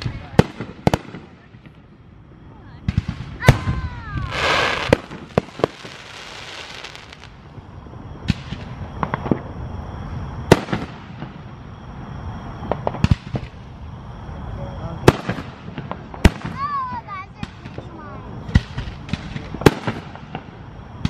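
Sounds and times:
fireworks bursting: 0.0s - 9.6s, 10.4s - 11.8s, 12.5s - 13.7s, 14.9s - 21.0s
hissing rush: 3.4s - 7.3s.

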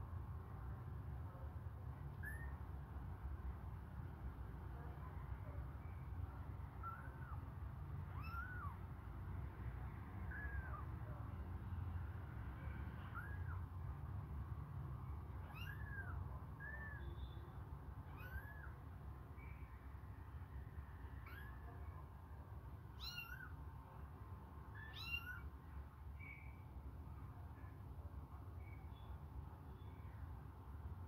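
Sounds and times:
kittens mewing: 8.1s - 8.8s, 15.4s - 16.9s, 18.0s - 18.8s, 23.0s - 23.6s, 24.8s - 25.5s.

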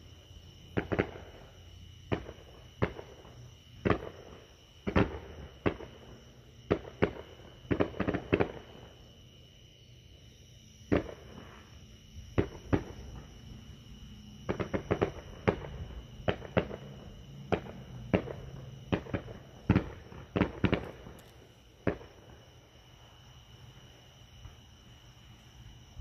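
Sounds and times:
fireworks bangs: 0.7s - 1.5s, 2.1s - 8.9s, 10.9s - 13.7s, 14.4s - 22.4s.

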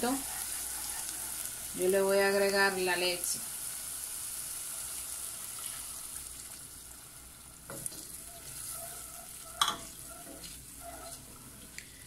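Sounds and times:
vegetables sizzling in a pot: 0.0s - 12.0s
wooden spoon stirring: 7.7s - 12.0s
spoon knocking against pot: 9.6s - 9.9s.

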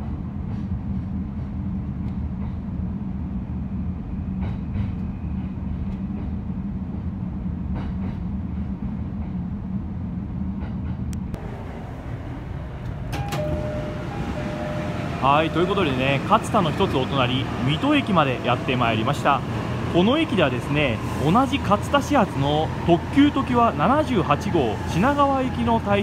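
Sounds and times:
electric train low rumble: 0.0s - 26.0s
station ambience: 11.3s - 26.0s.

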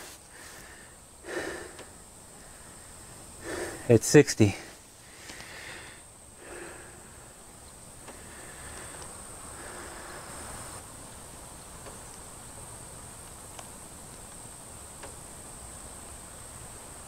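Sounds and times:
insects buzzing: 0.0s - 17.0s
faint ticks: 1.6s - 2.0s, 5.2s - 5.6s, 7.6s - 9.2s, 10.4s - 12.3s, 12.9s - 15.3s.

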